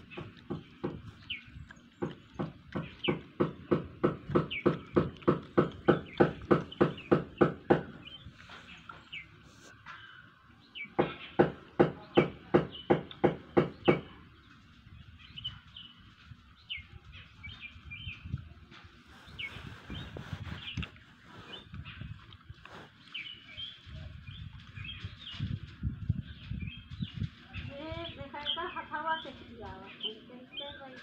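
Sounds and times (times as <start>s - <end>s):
monkey chewing wetly: 0.0s - 9.7s, 19.3s - 23.8s
birds chirping: 0.0s - 31.0s.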